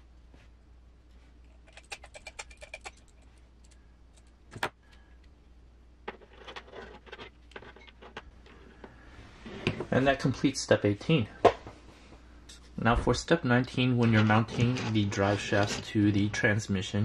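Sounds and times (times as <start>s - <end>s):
small metal parts clicking: 1.6s - 4.4s.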